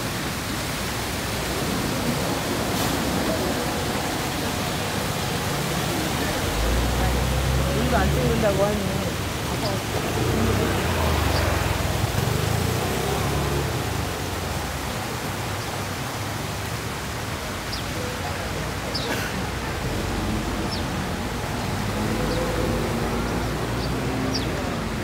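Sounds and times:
stream water rushing: 0.0s - 25.0s
faint voices: 1.6s - 12.7s.

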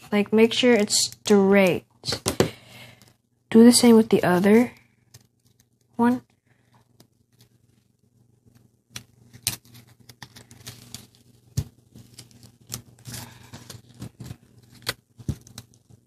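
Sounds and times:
paper folding clicks and rustles: 8.5s - 16.0s.

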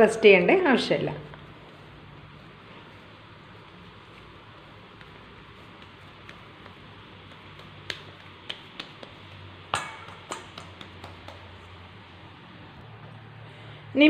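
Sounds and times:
dough knocking on a steel bowl: 5.8s - 11.9s.

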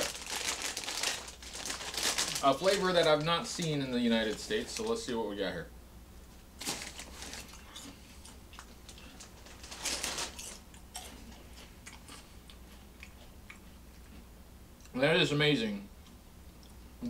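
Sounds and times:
potato chips crunching: 0.0s - 3.6s, 6.6s - 14.1s.

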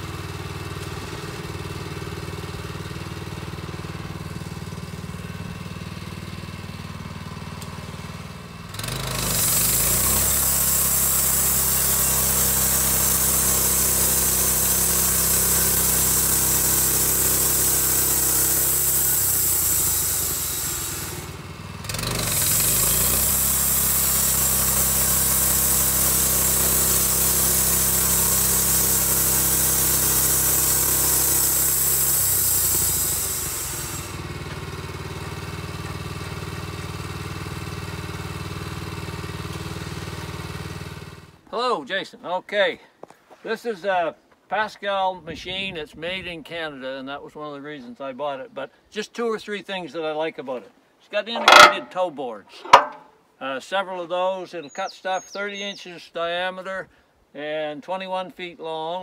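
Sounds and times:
gas engine running: 0.0s - 41.4s, 51.4s - 52.0s
band blade hiss: 9.4s - 21.4s, 22.4s - 34.2s.

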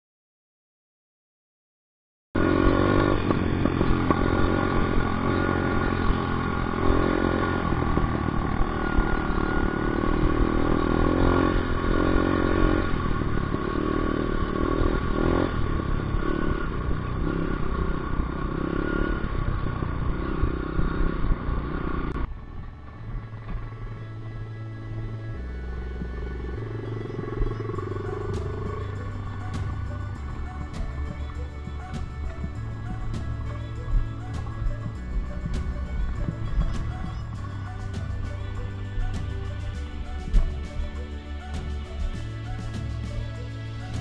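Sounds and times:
motorcycle engine revving: 2.4s - 44.0s.

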